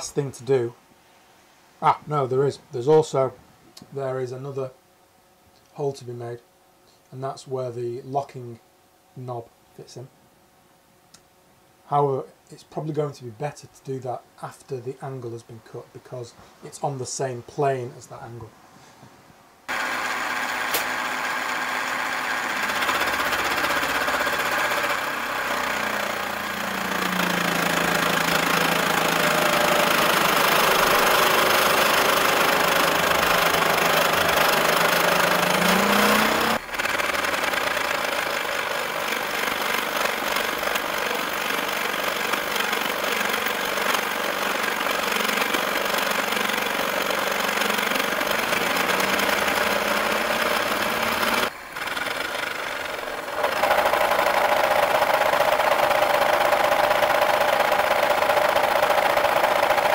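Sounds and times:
machine hum: 0:19.6 - 0:59.9
milling machine cutting metal: 0:19.7 - 0:59.9.

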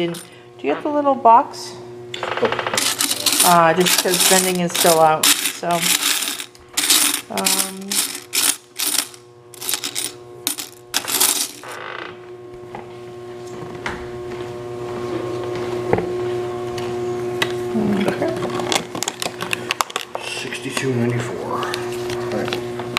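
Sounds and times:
machine hum: 0:01.7 - 0:12.8
coins clattering and jingling: 0:02.8 - 0:11.8.

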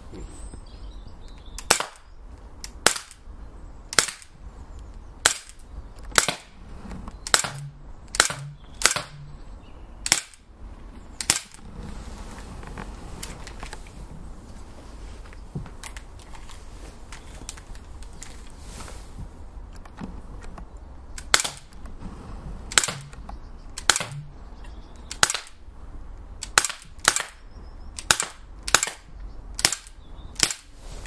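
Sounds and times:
air pistol shots cracking: 0:01.6 - 0:03.3, 0:03.9 - 0:04.4, 0:05.2 - 0:06.6, 0:07.3 - 0:09.3, 0:10.0 - 0:10.5, 0:11.2 - 0:11.6, 0:21.2 - 0:21.8, 0:22.7 - 0:23.2, 0:23.8 - 0:24.3, 0:25.1 - 0:25.6, 0:26.4 - 0:27.4, 0:28.0 - 0:30.8.

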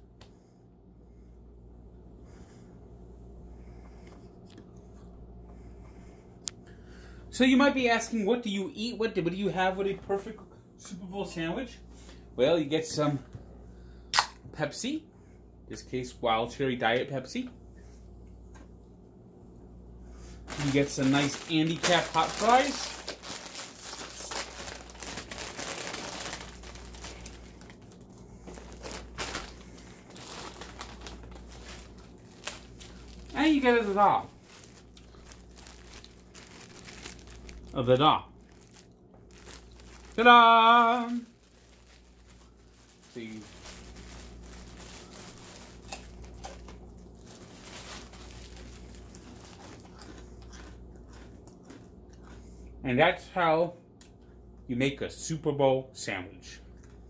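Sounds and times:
plastic bag crinkling: 0:20.4 - 0:51.3
crunching snack: 0:20.5 - 0:52.8.

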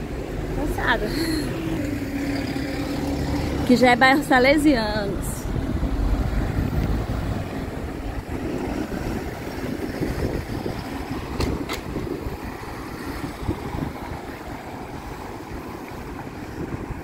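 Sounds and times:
bus engine drawing away: 0:00.0 - 0:17.0
street traffic: 0:00.0 - 0:17.0
wind rumbling on microphone: 0:04.8 - 0:17.0.

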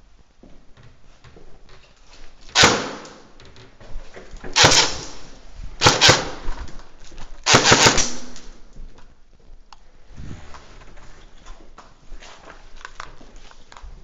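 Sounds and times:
airsoft gunfire echoing: 0:02.6 - 0:03.3, 0:04.6 - 0:06.4, 0:07.4 - 0:08.6.

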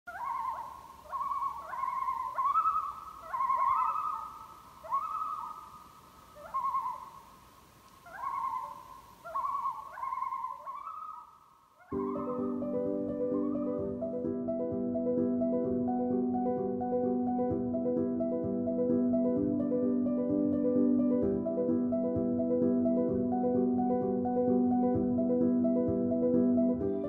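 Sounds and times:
loons calling: 0:00.1 - 0:14.8
mallet and piano music: 0:11.9 - 0:27.0.

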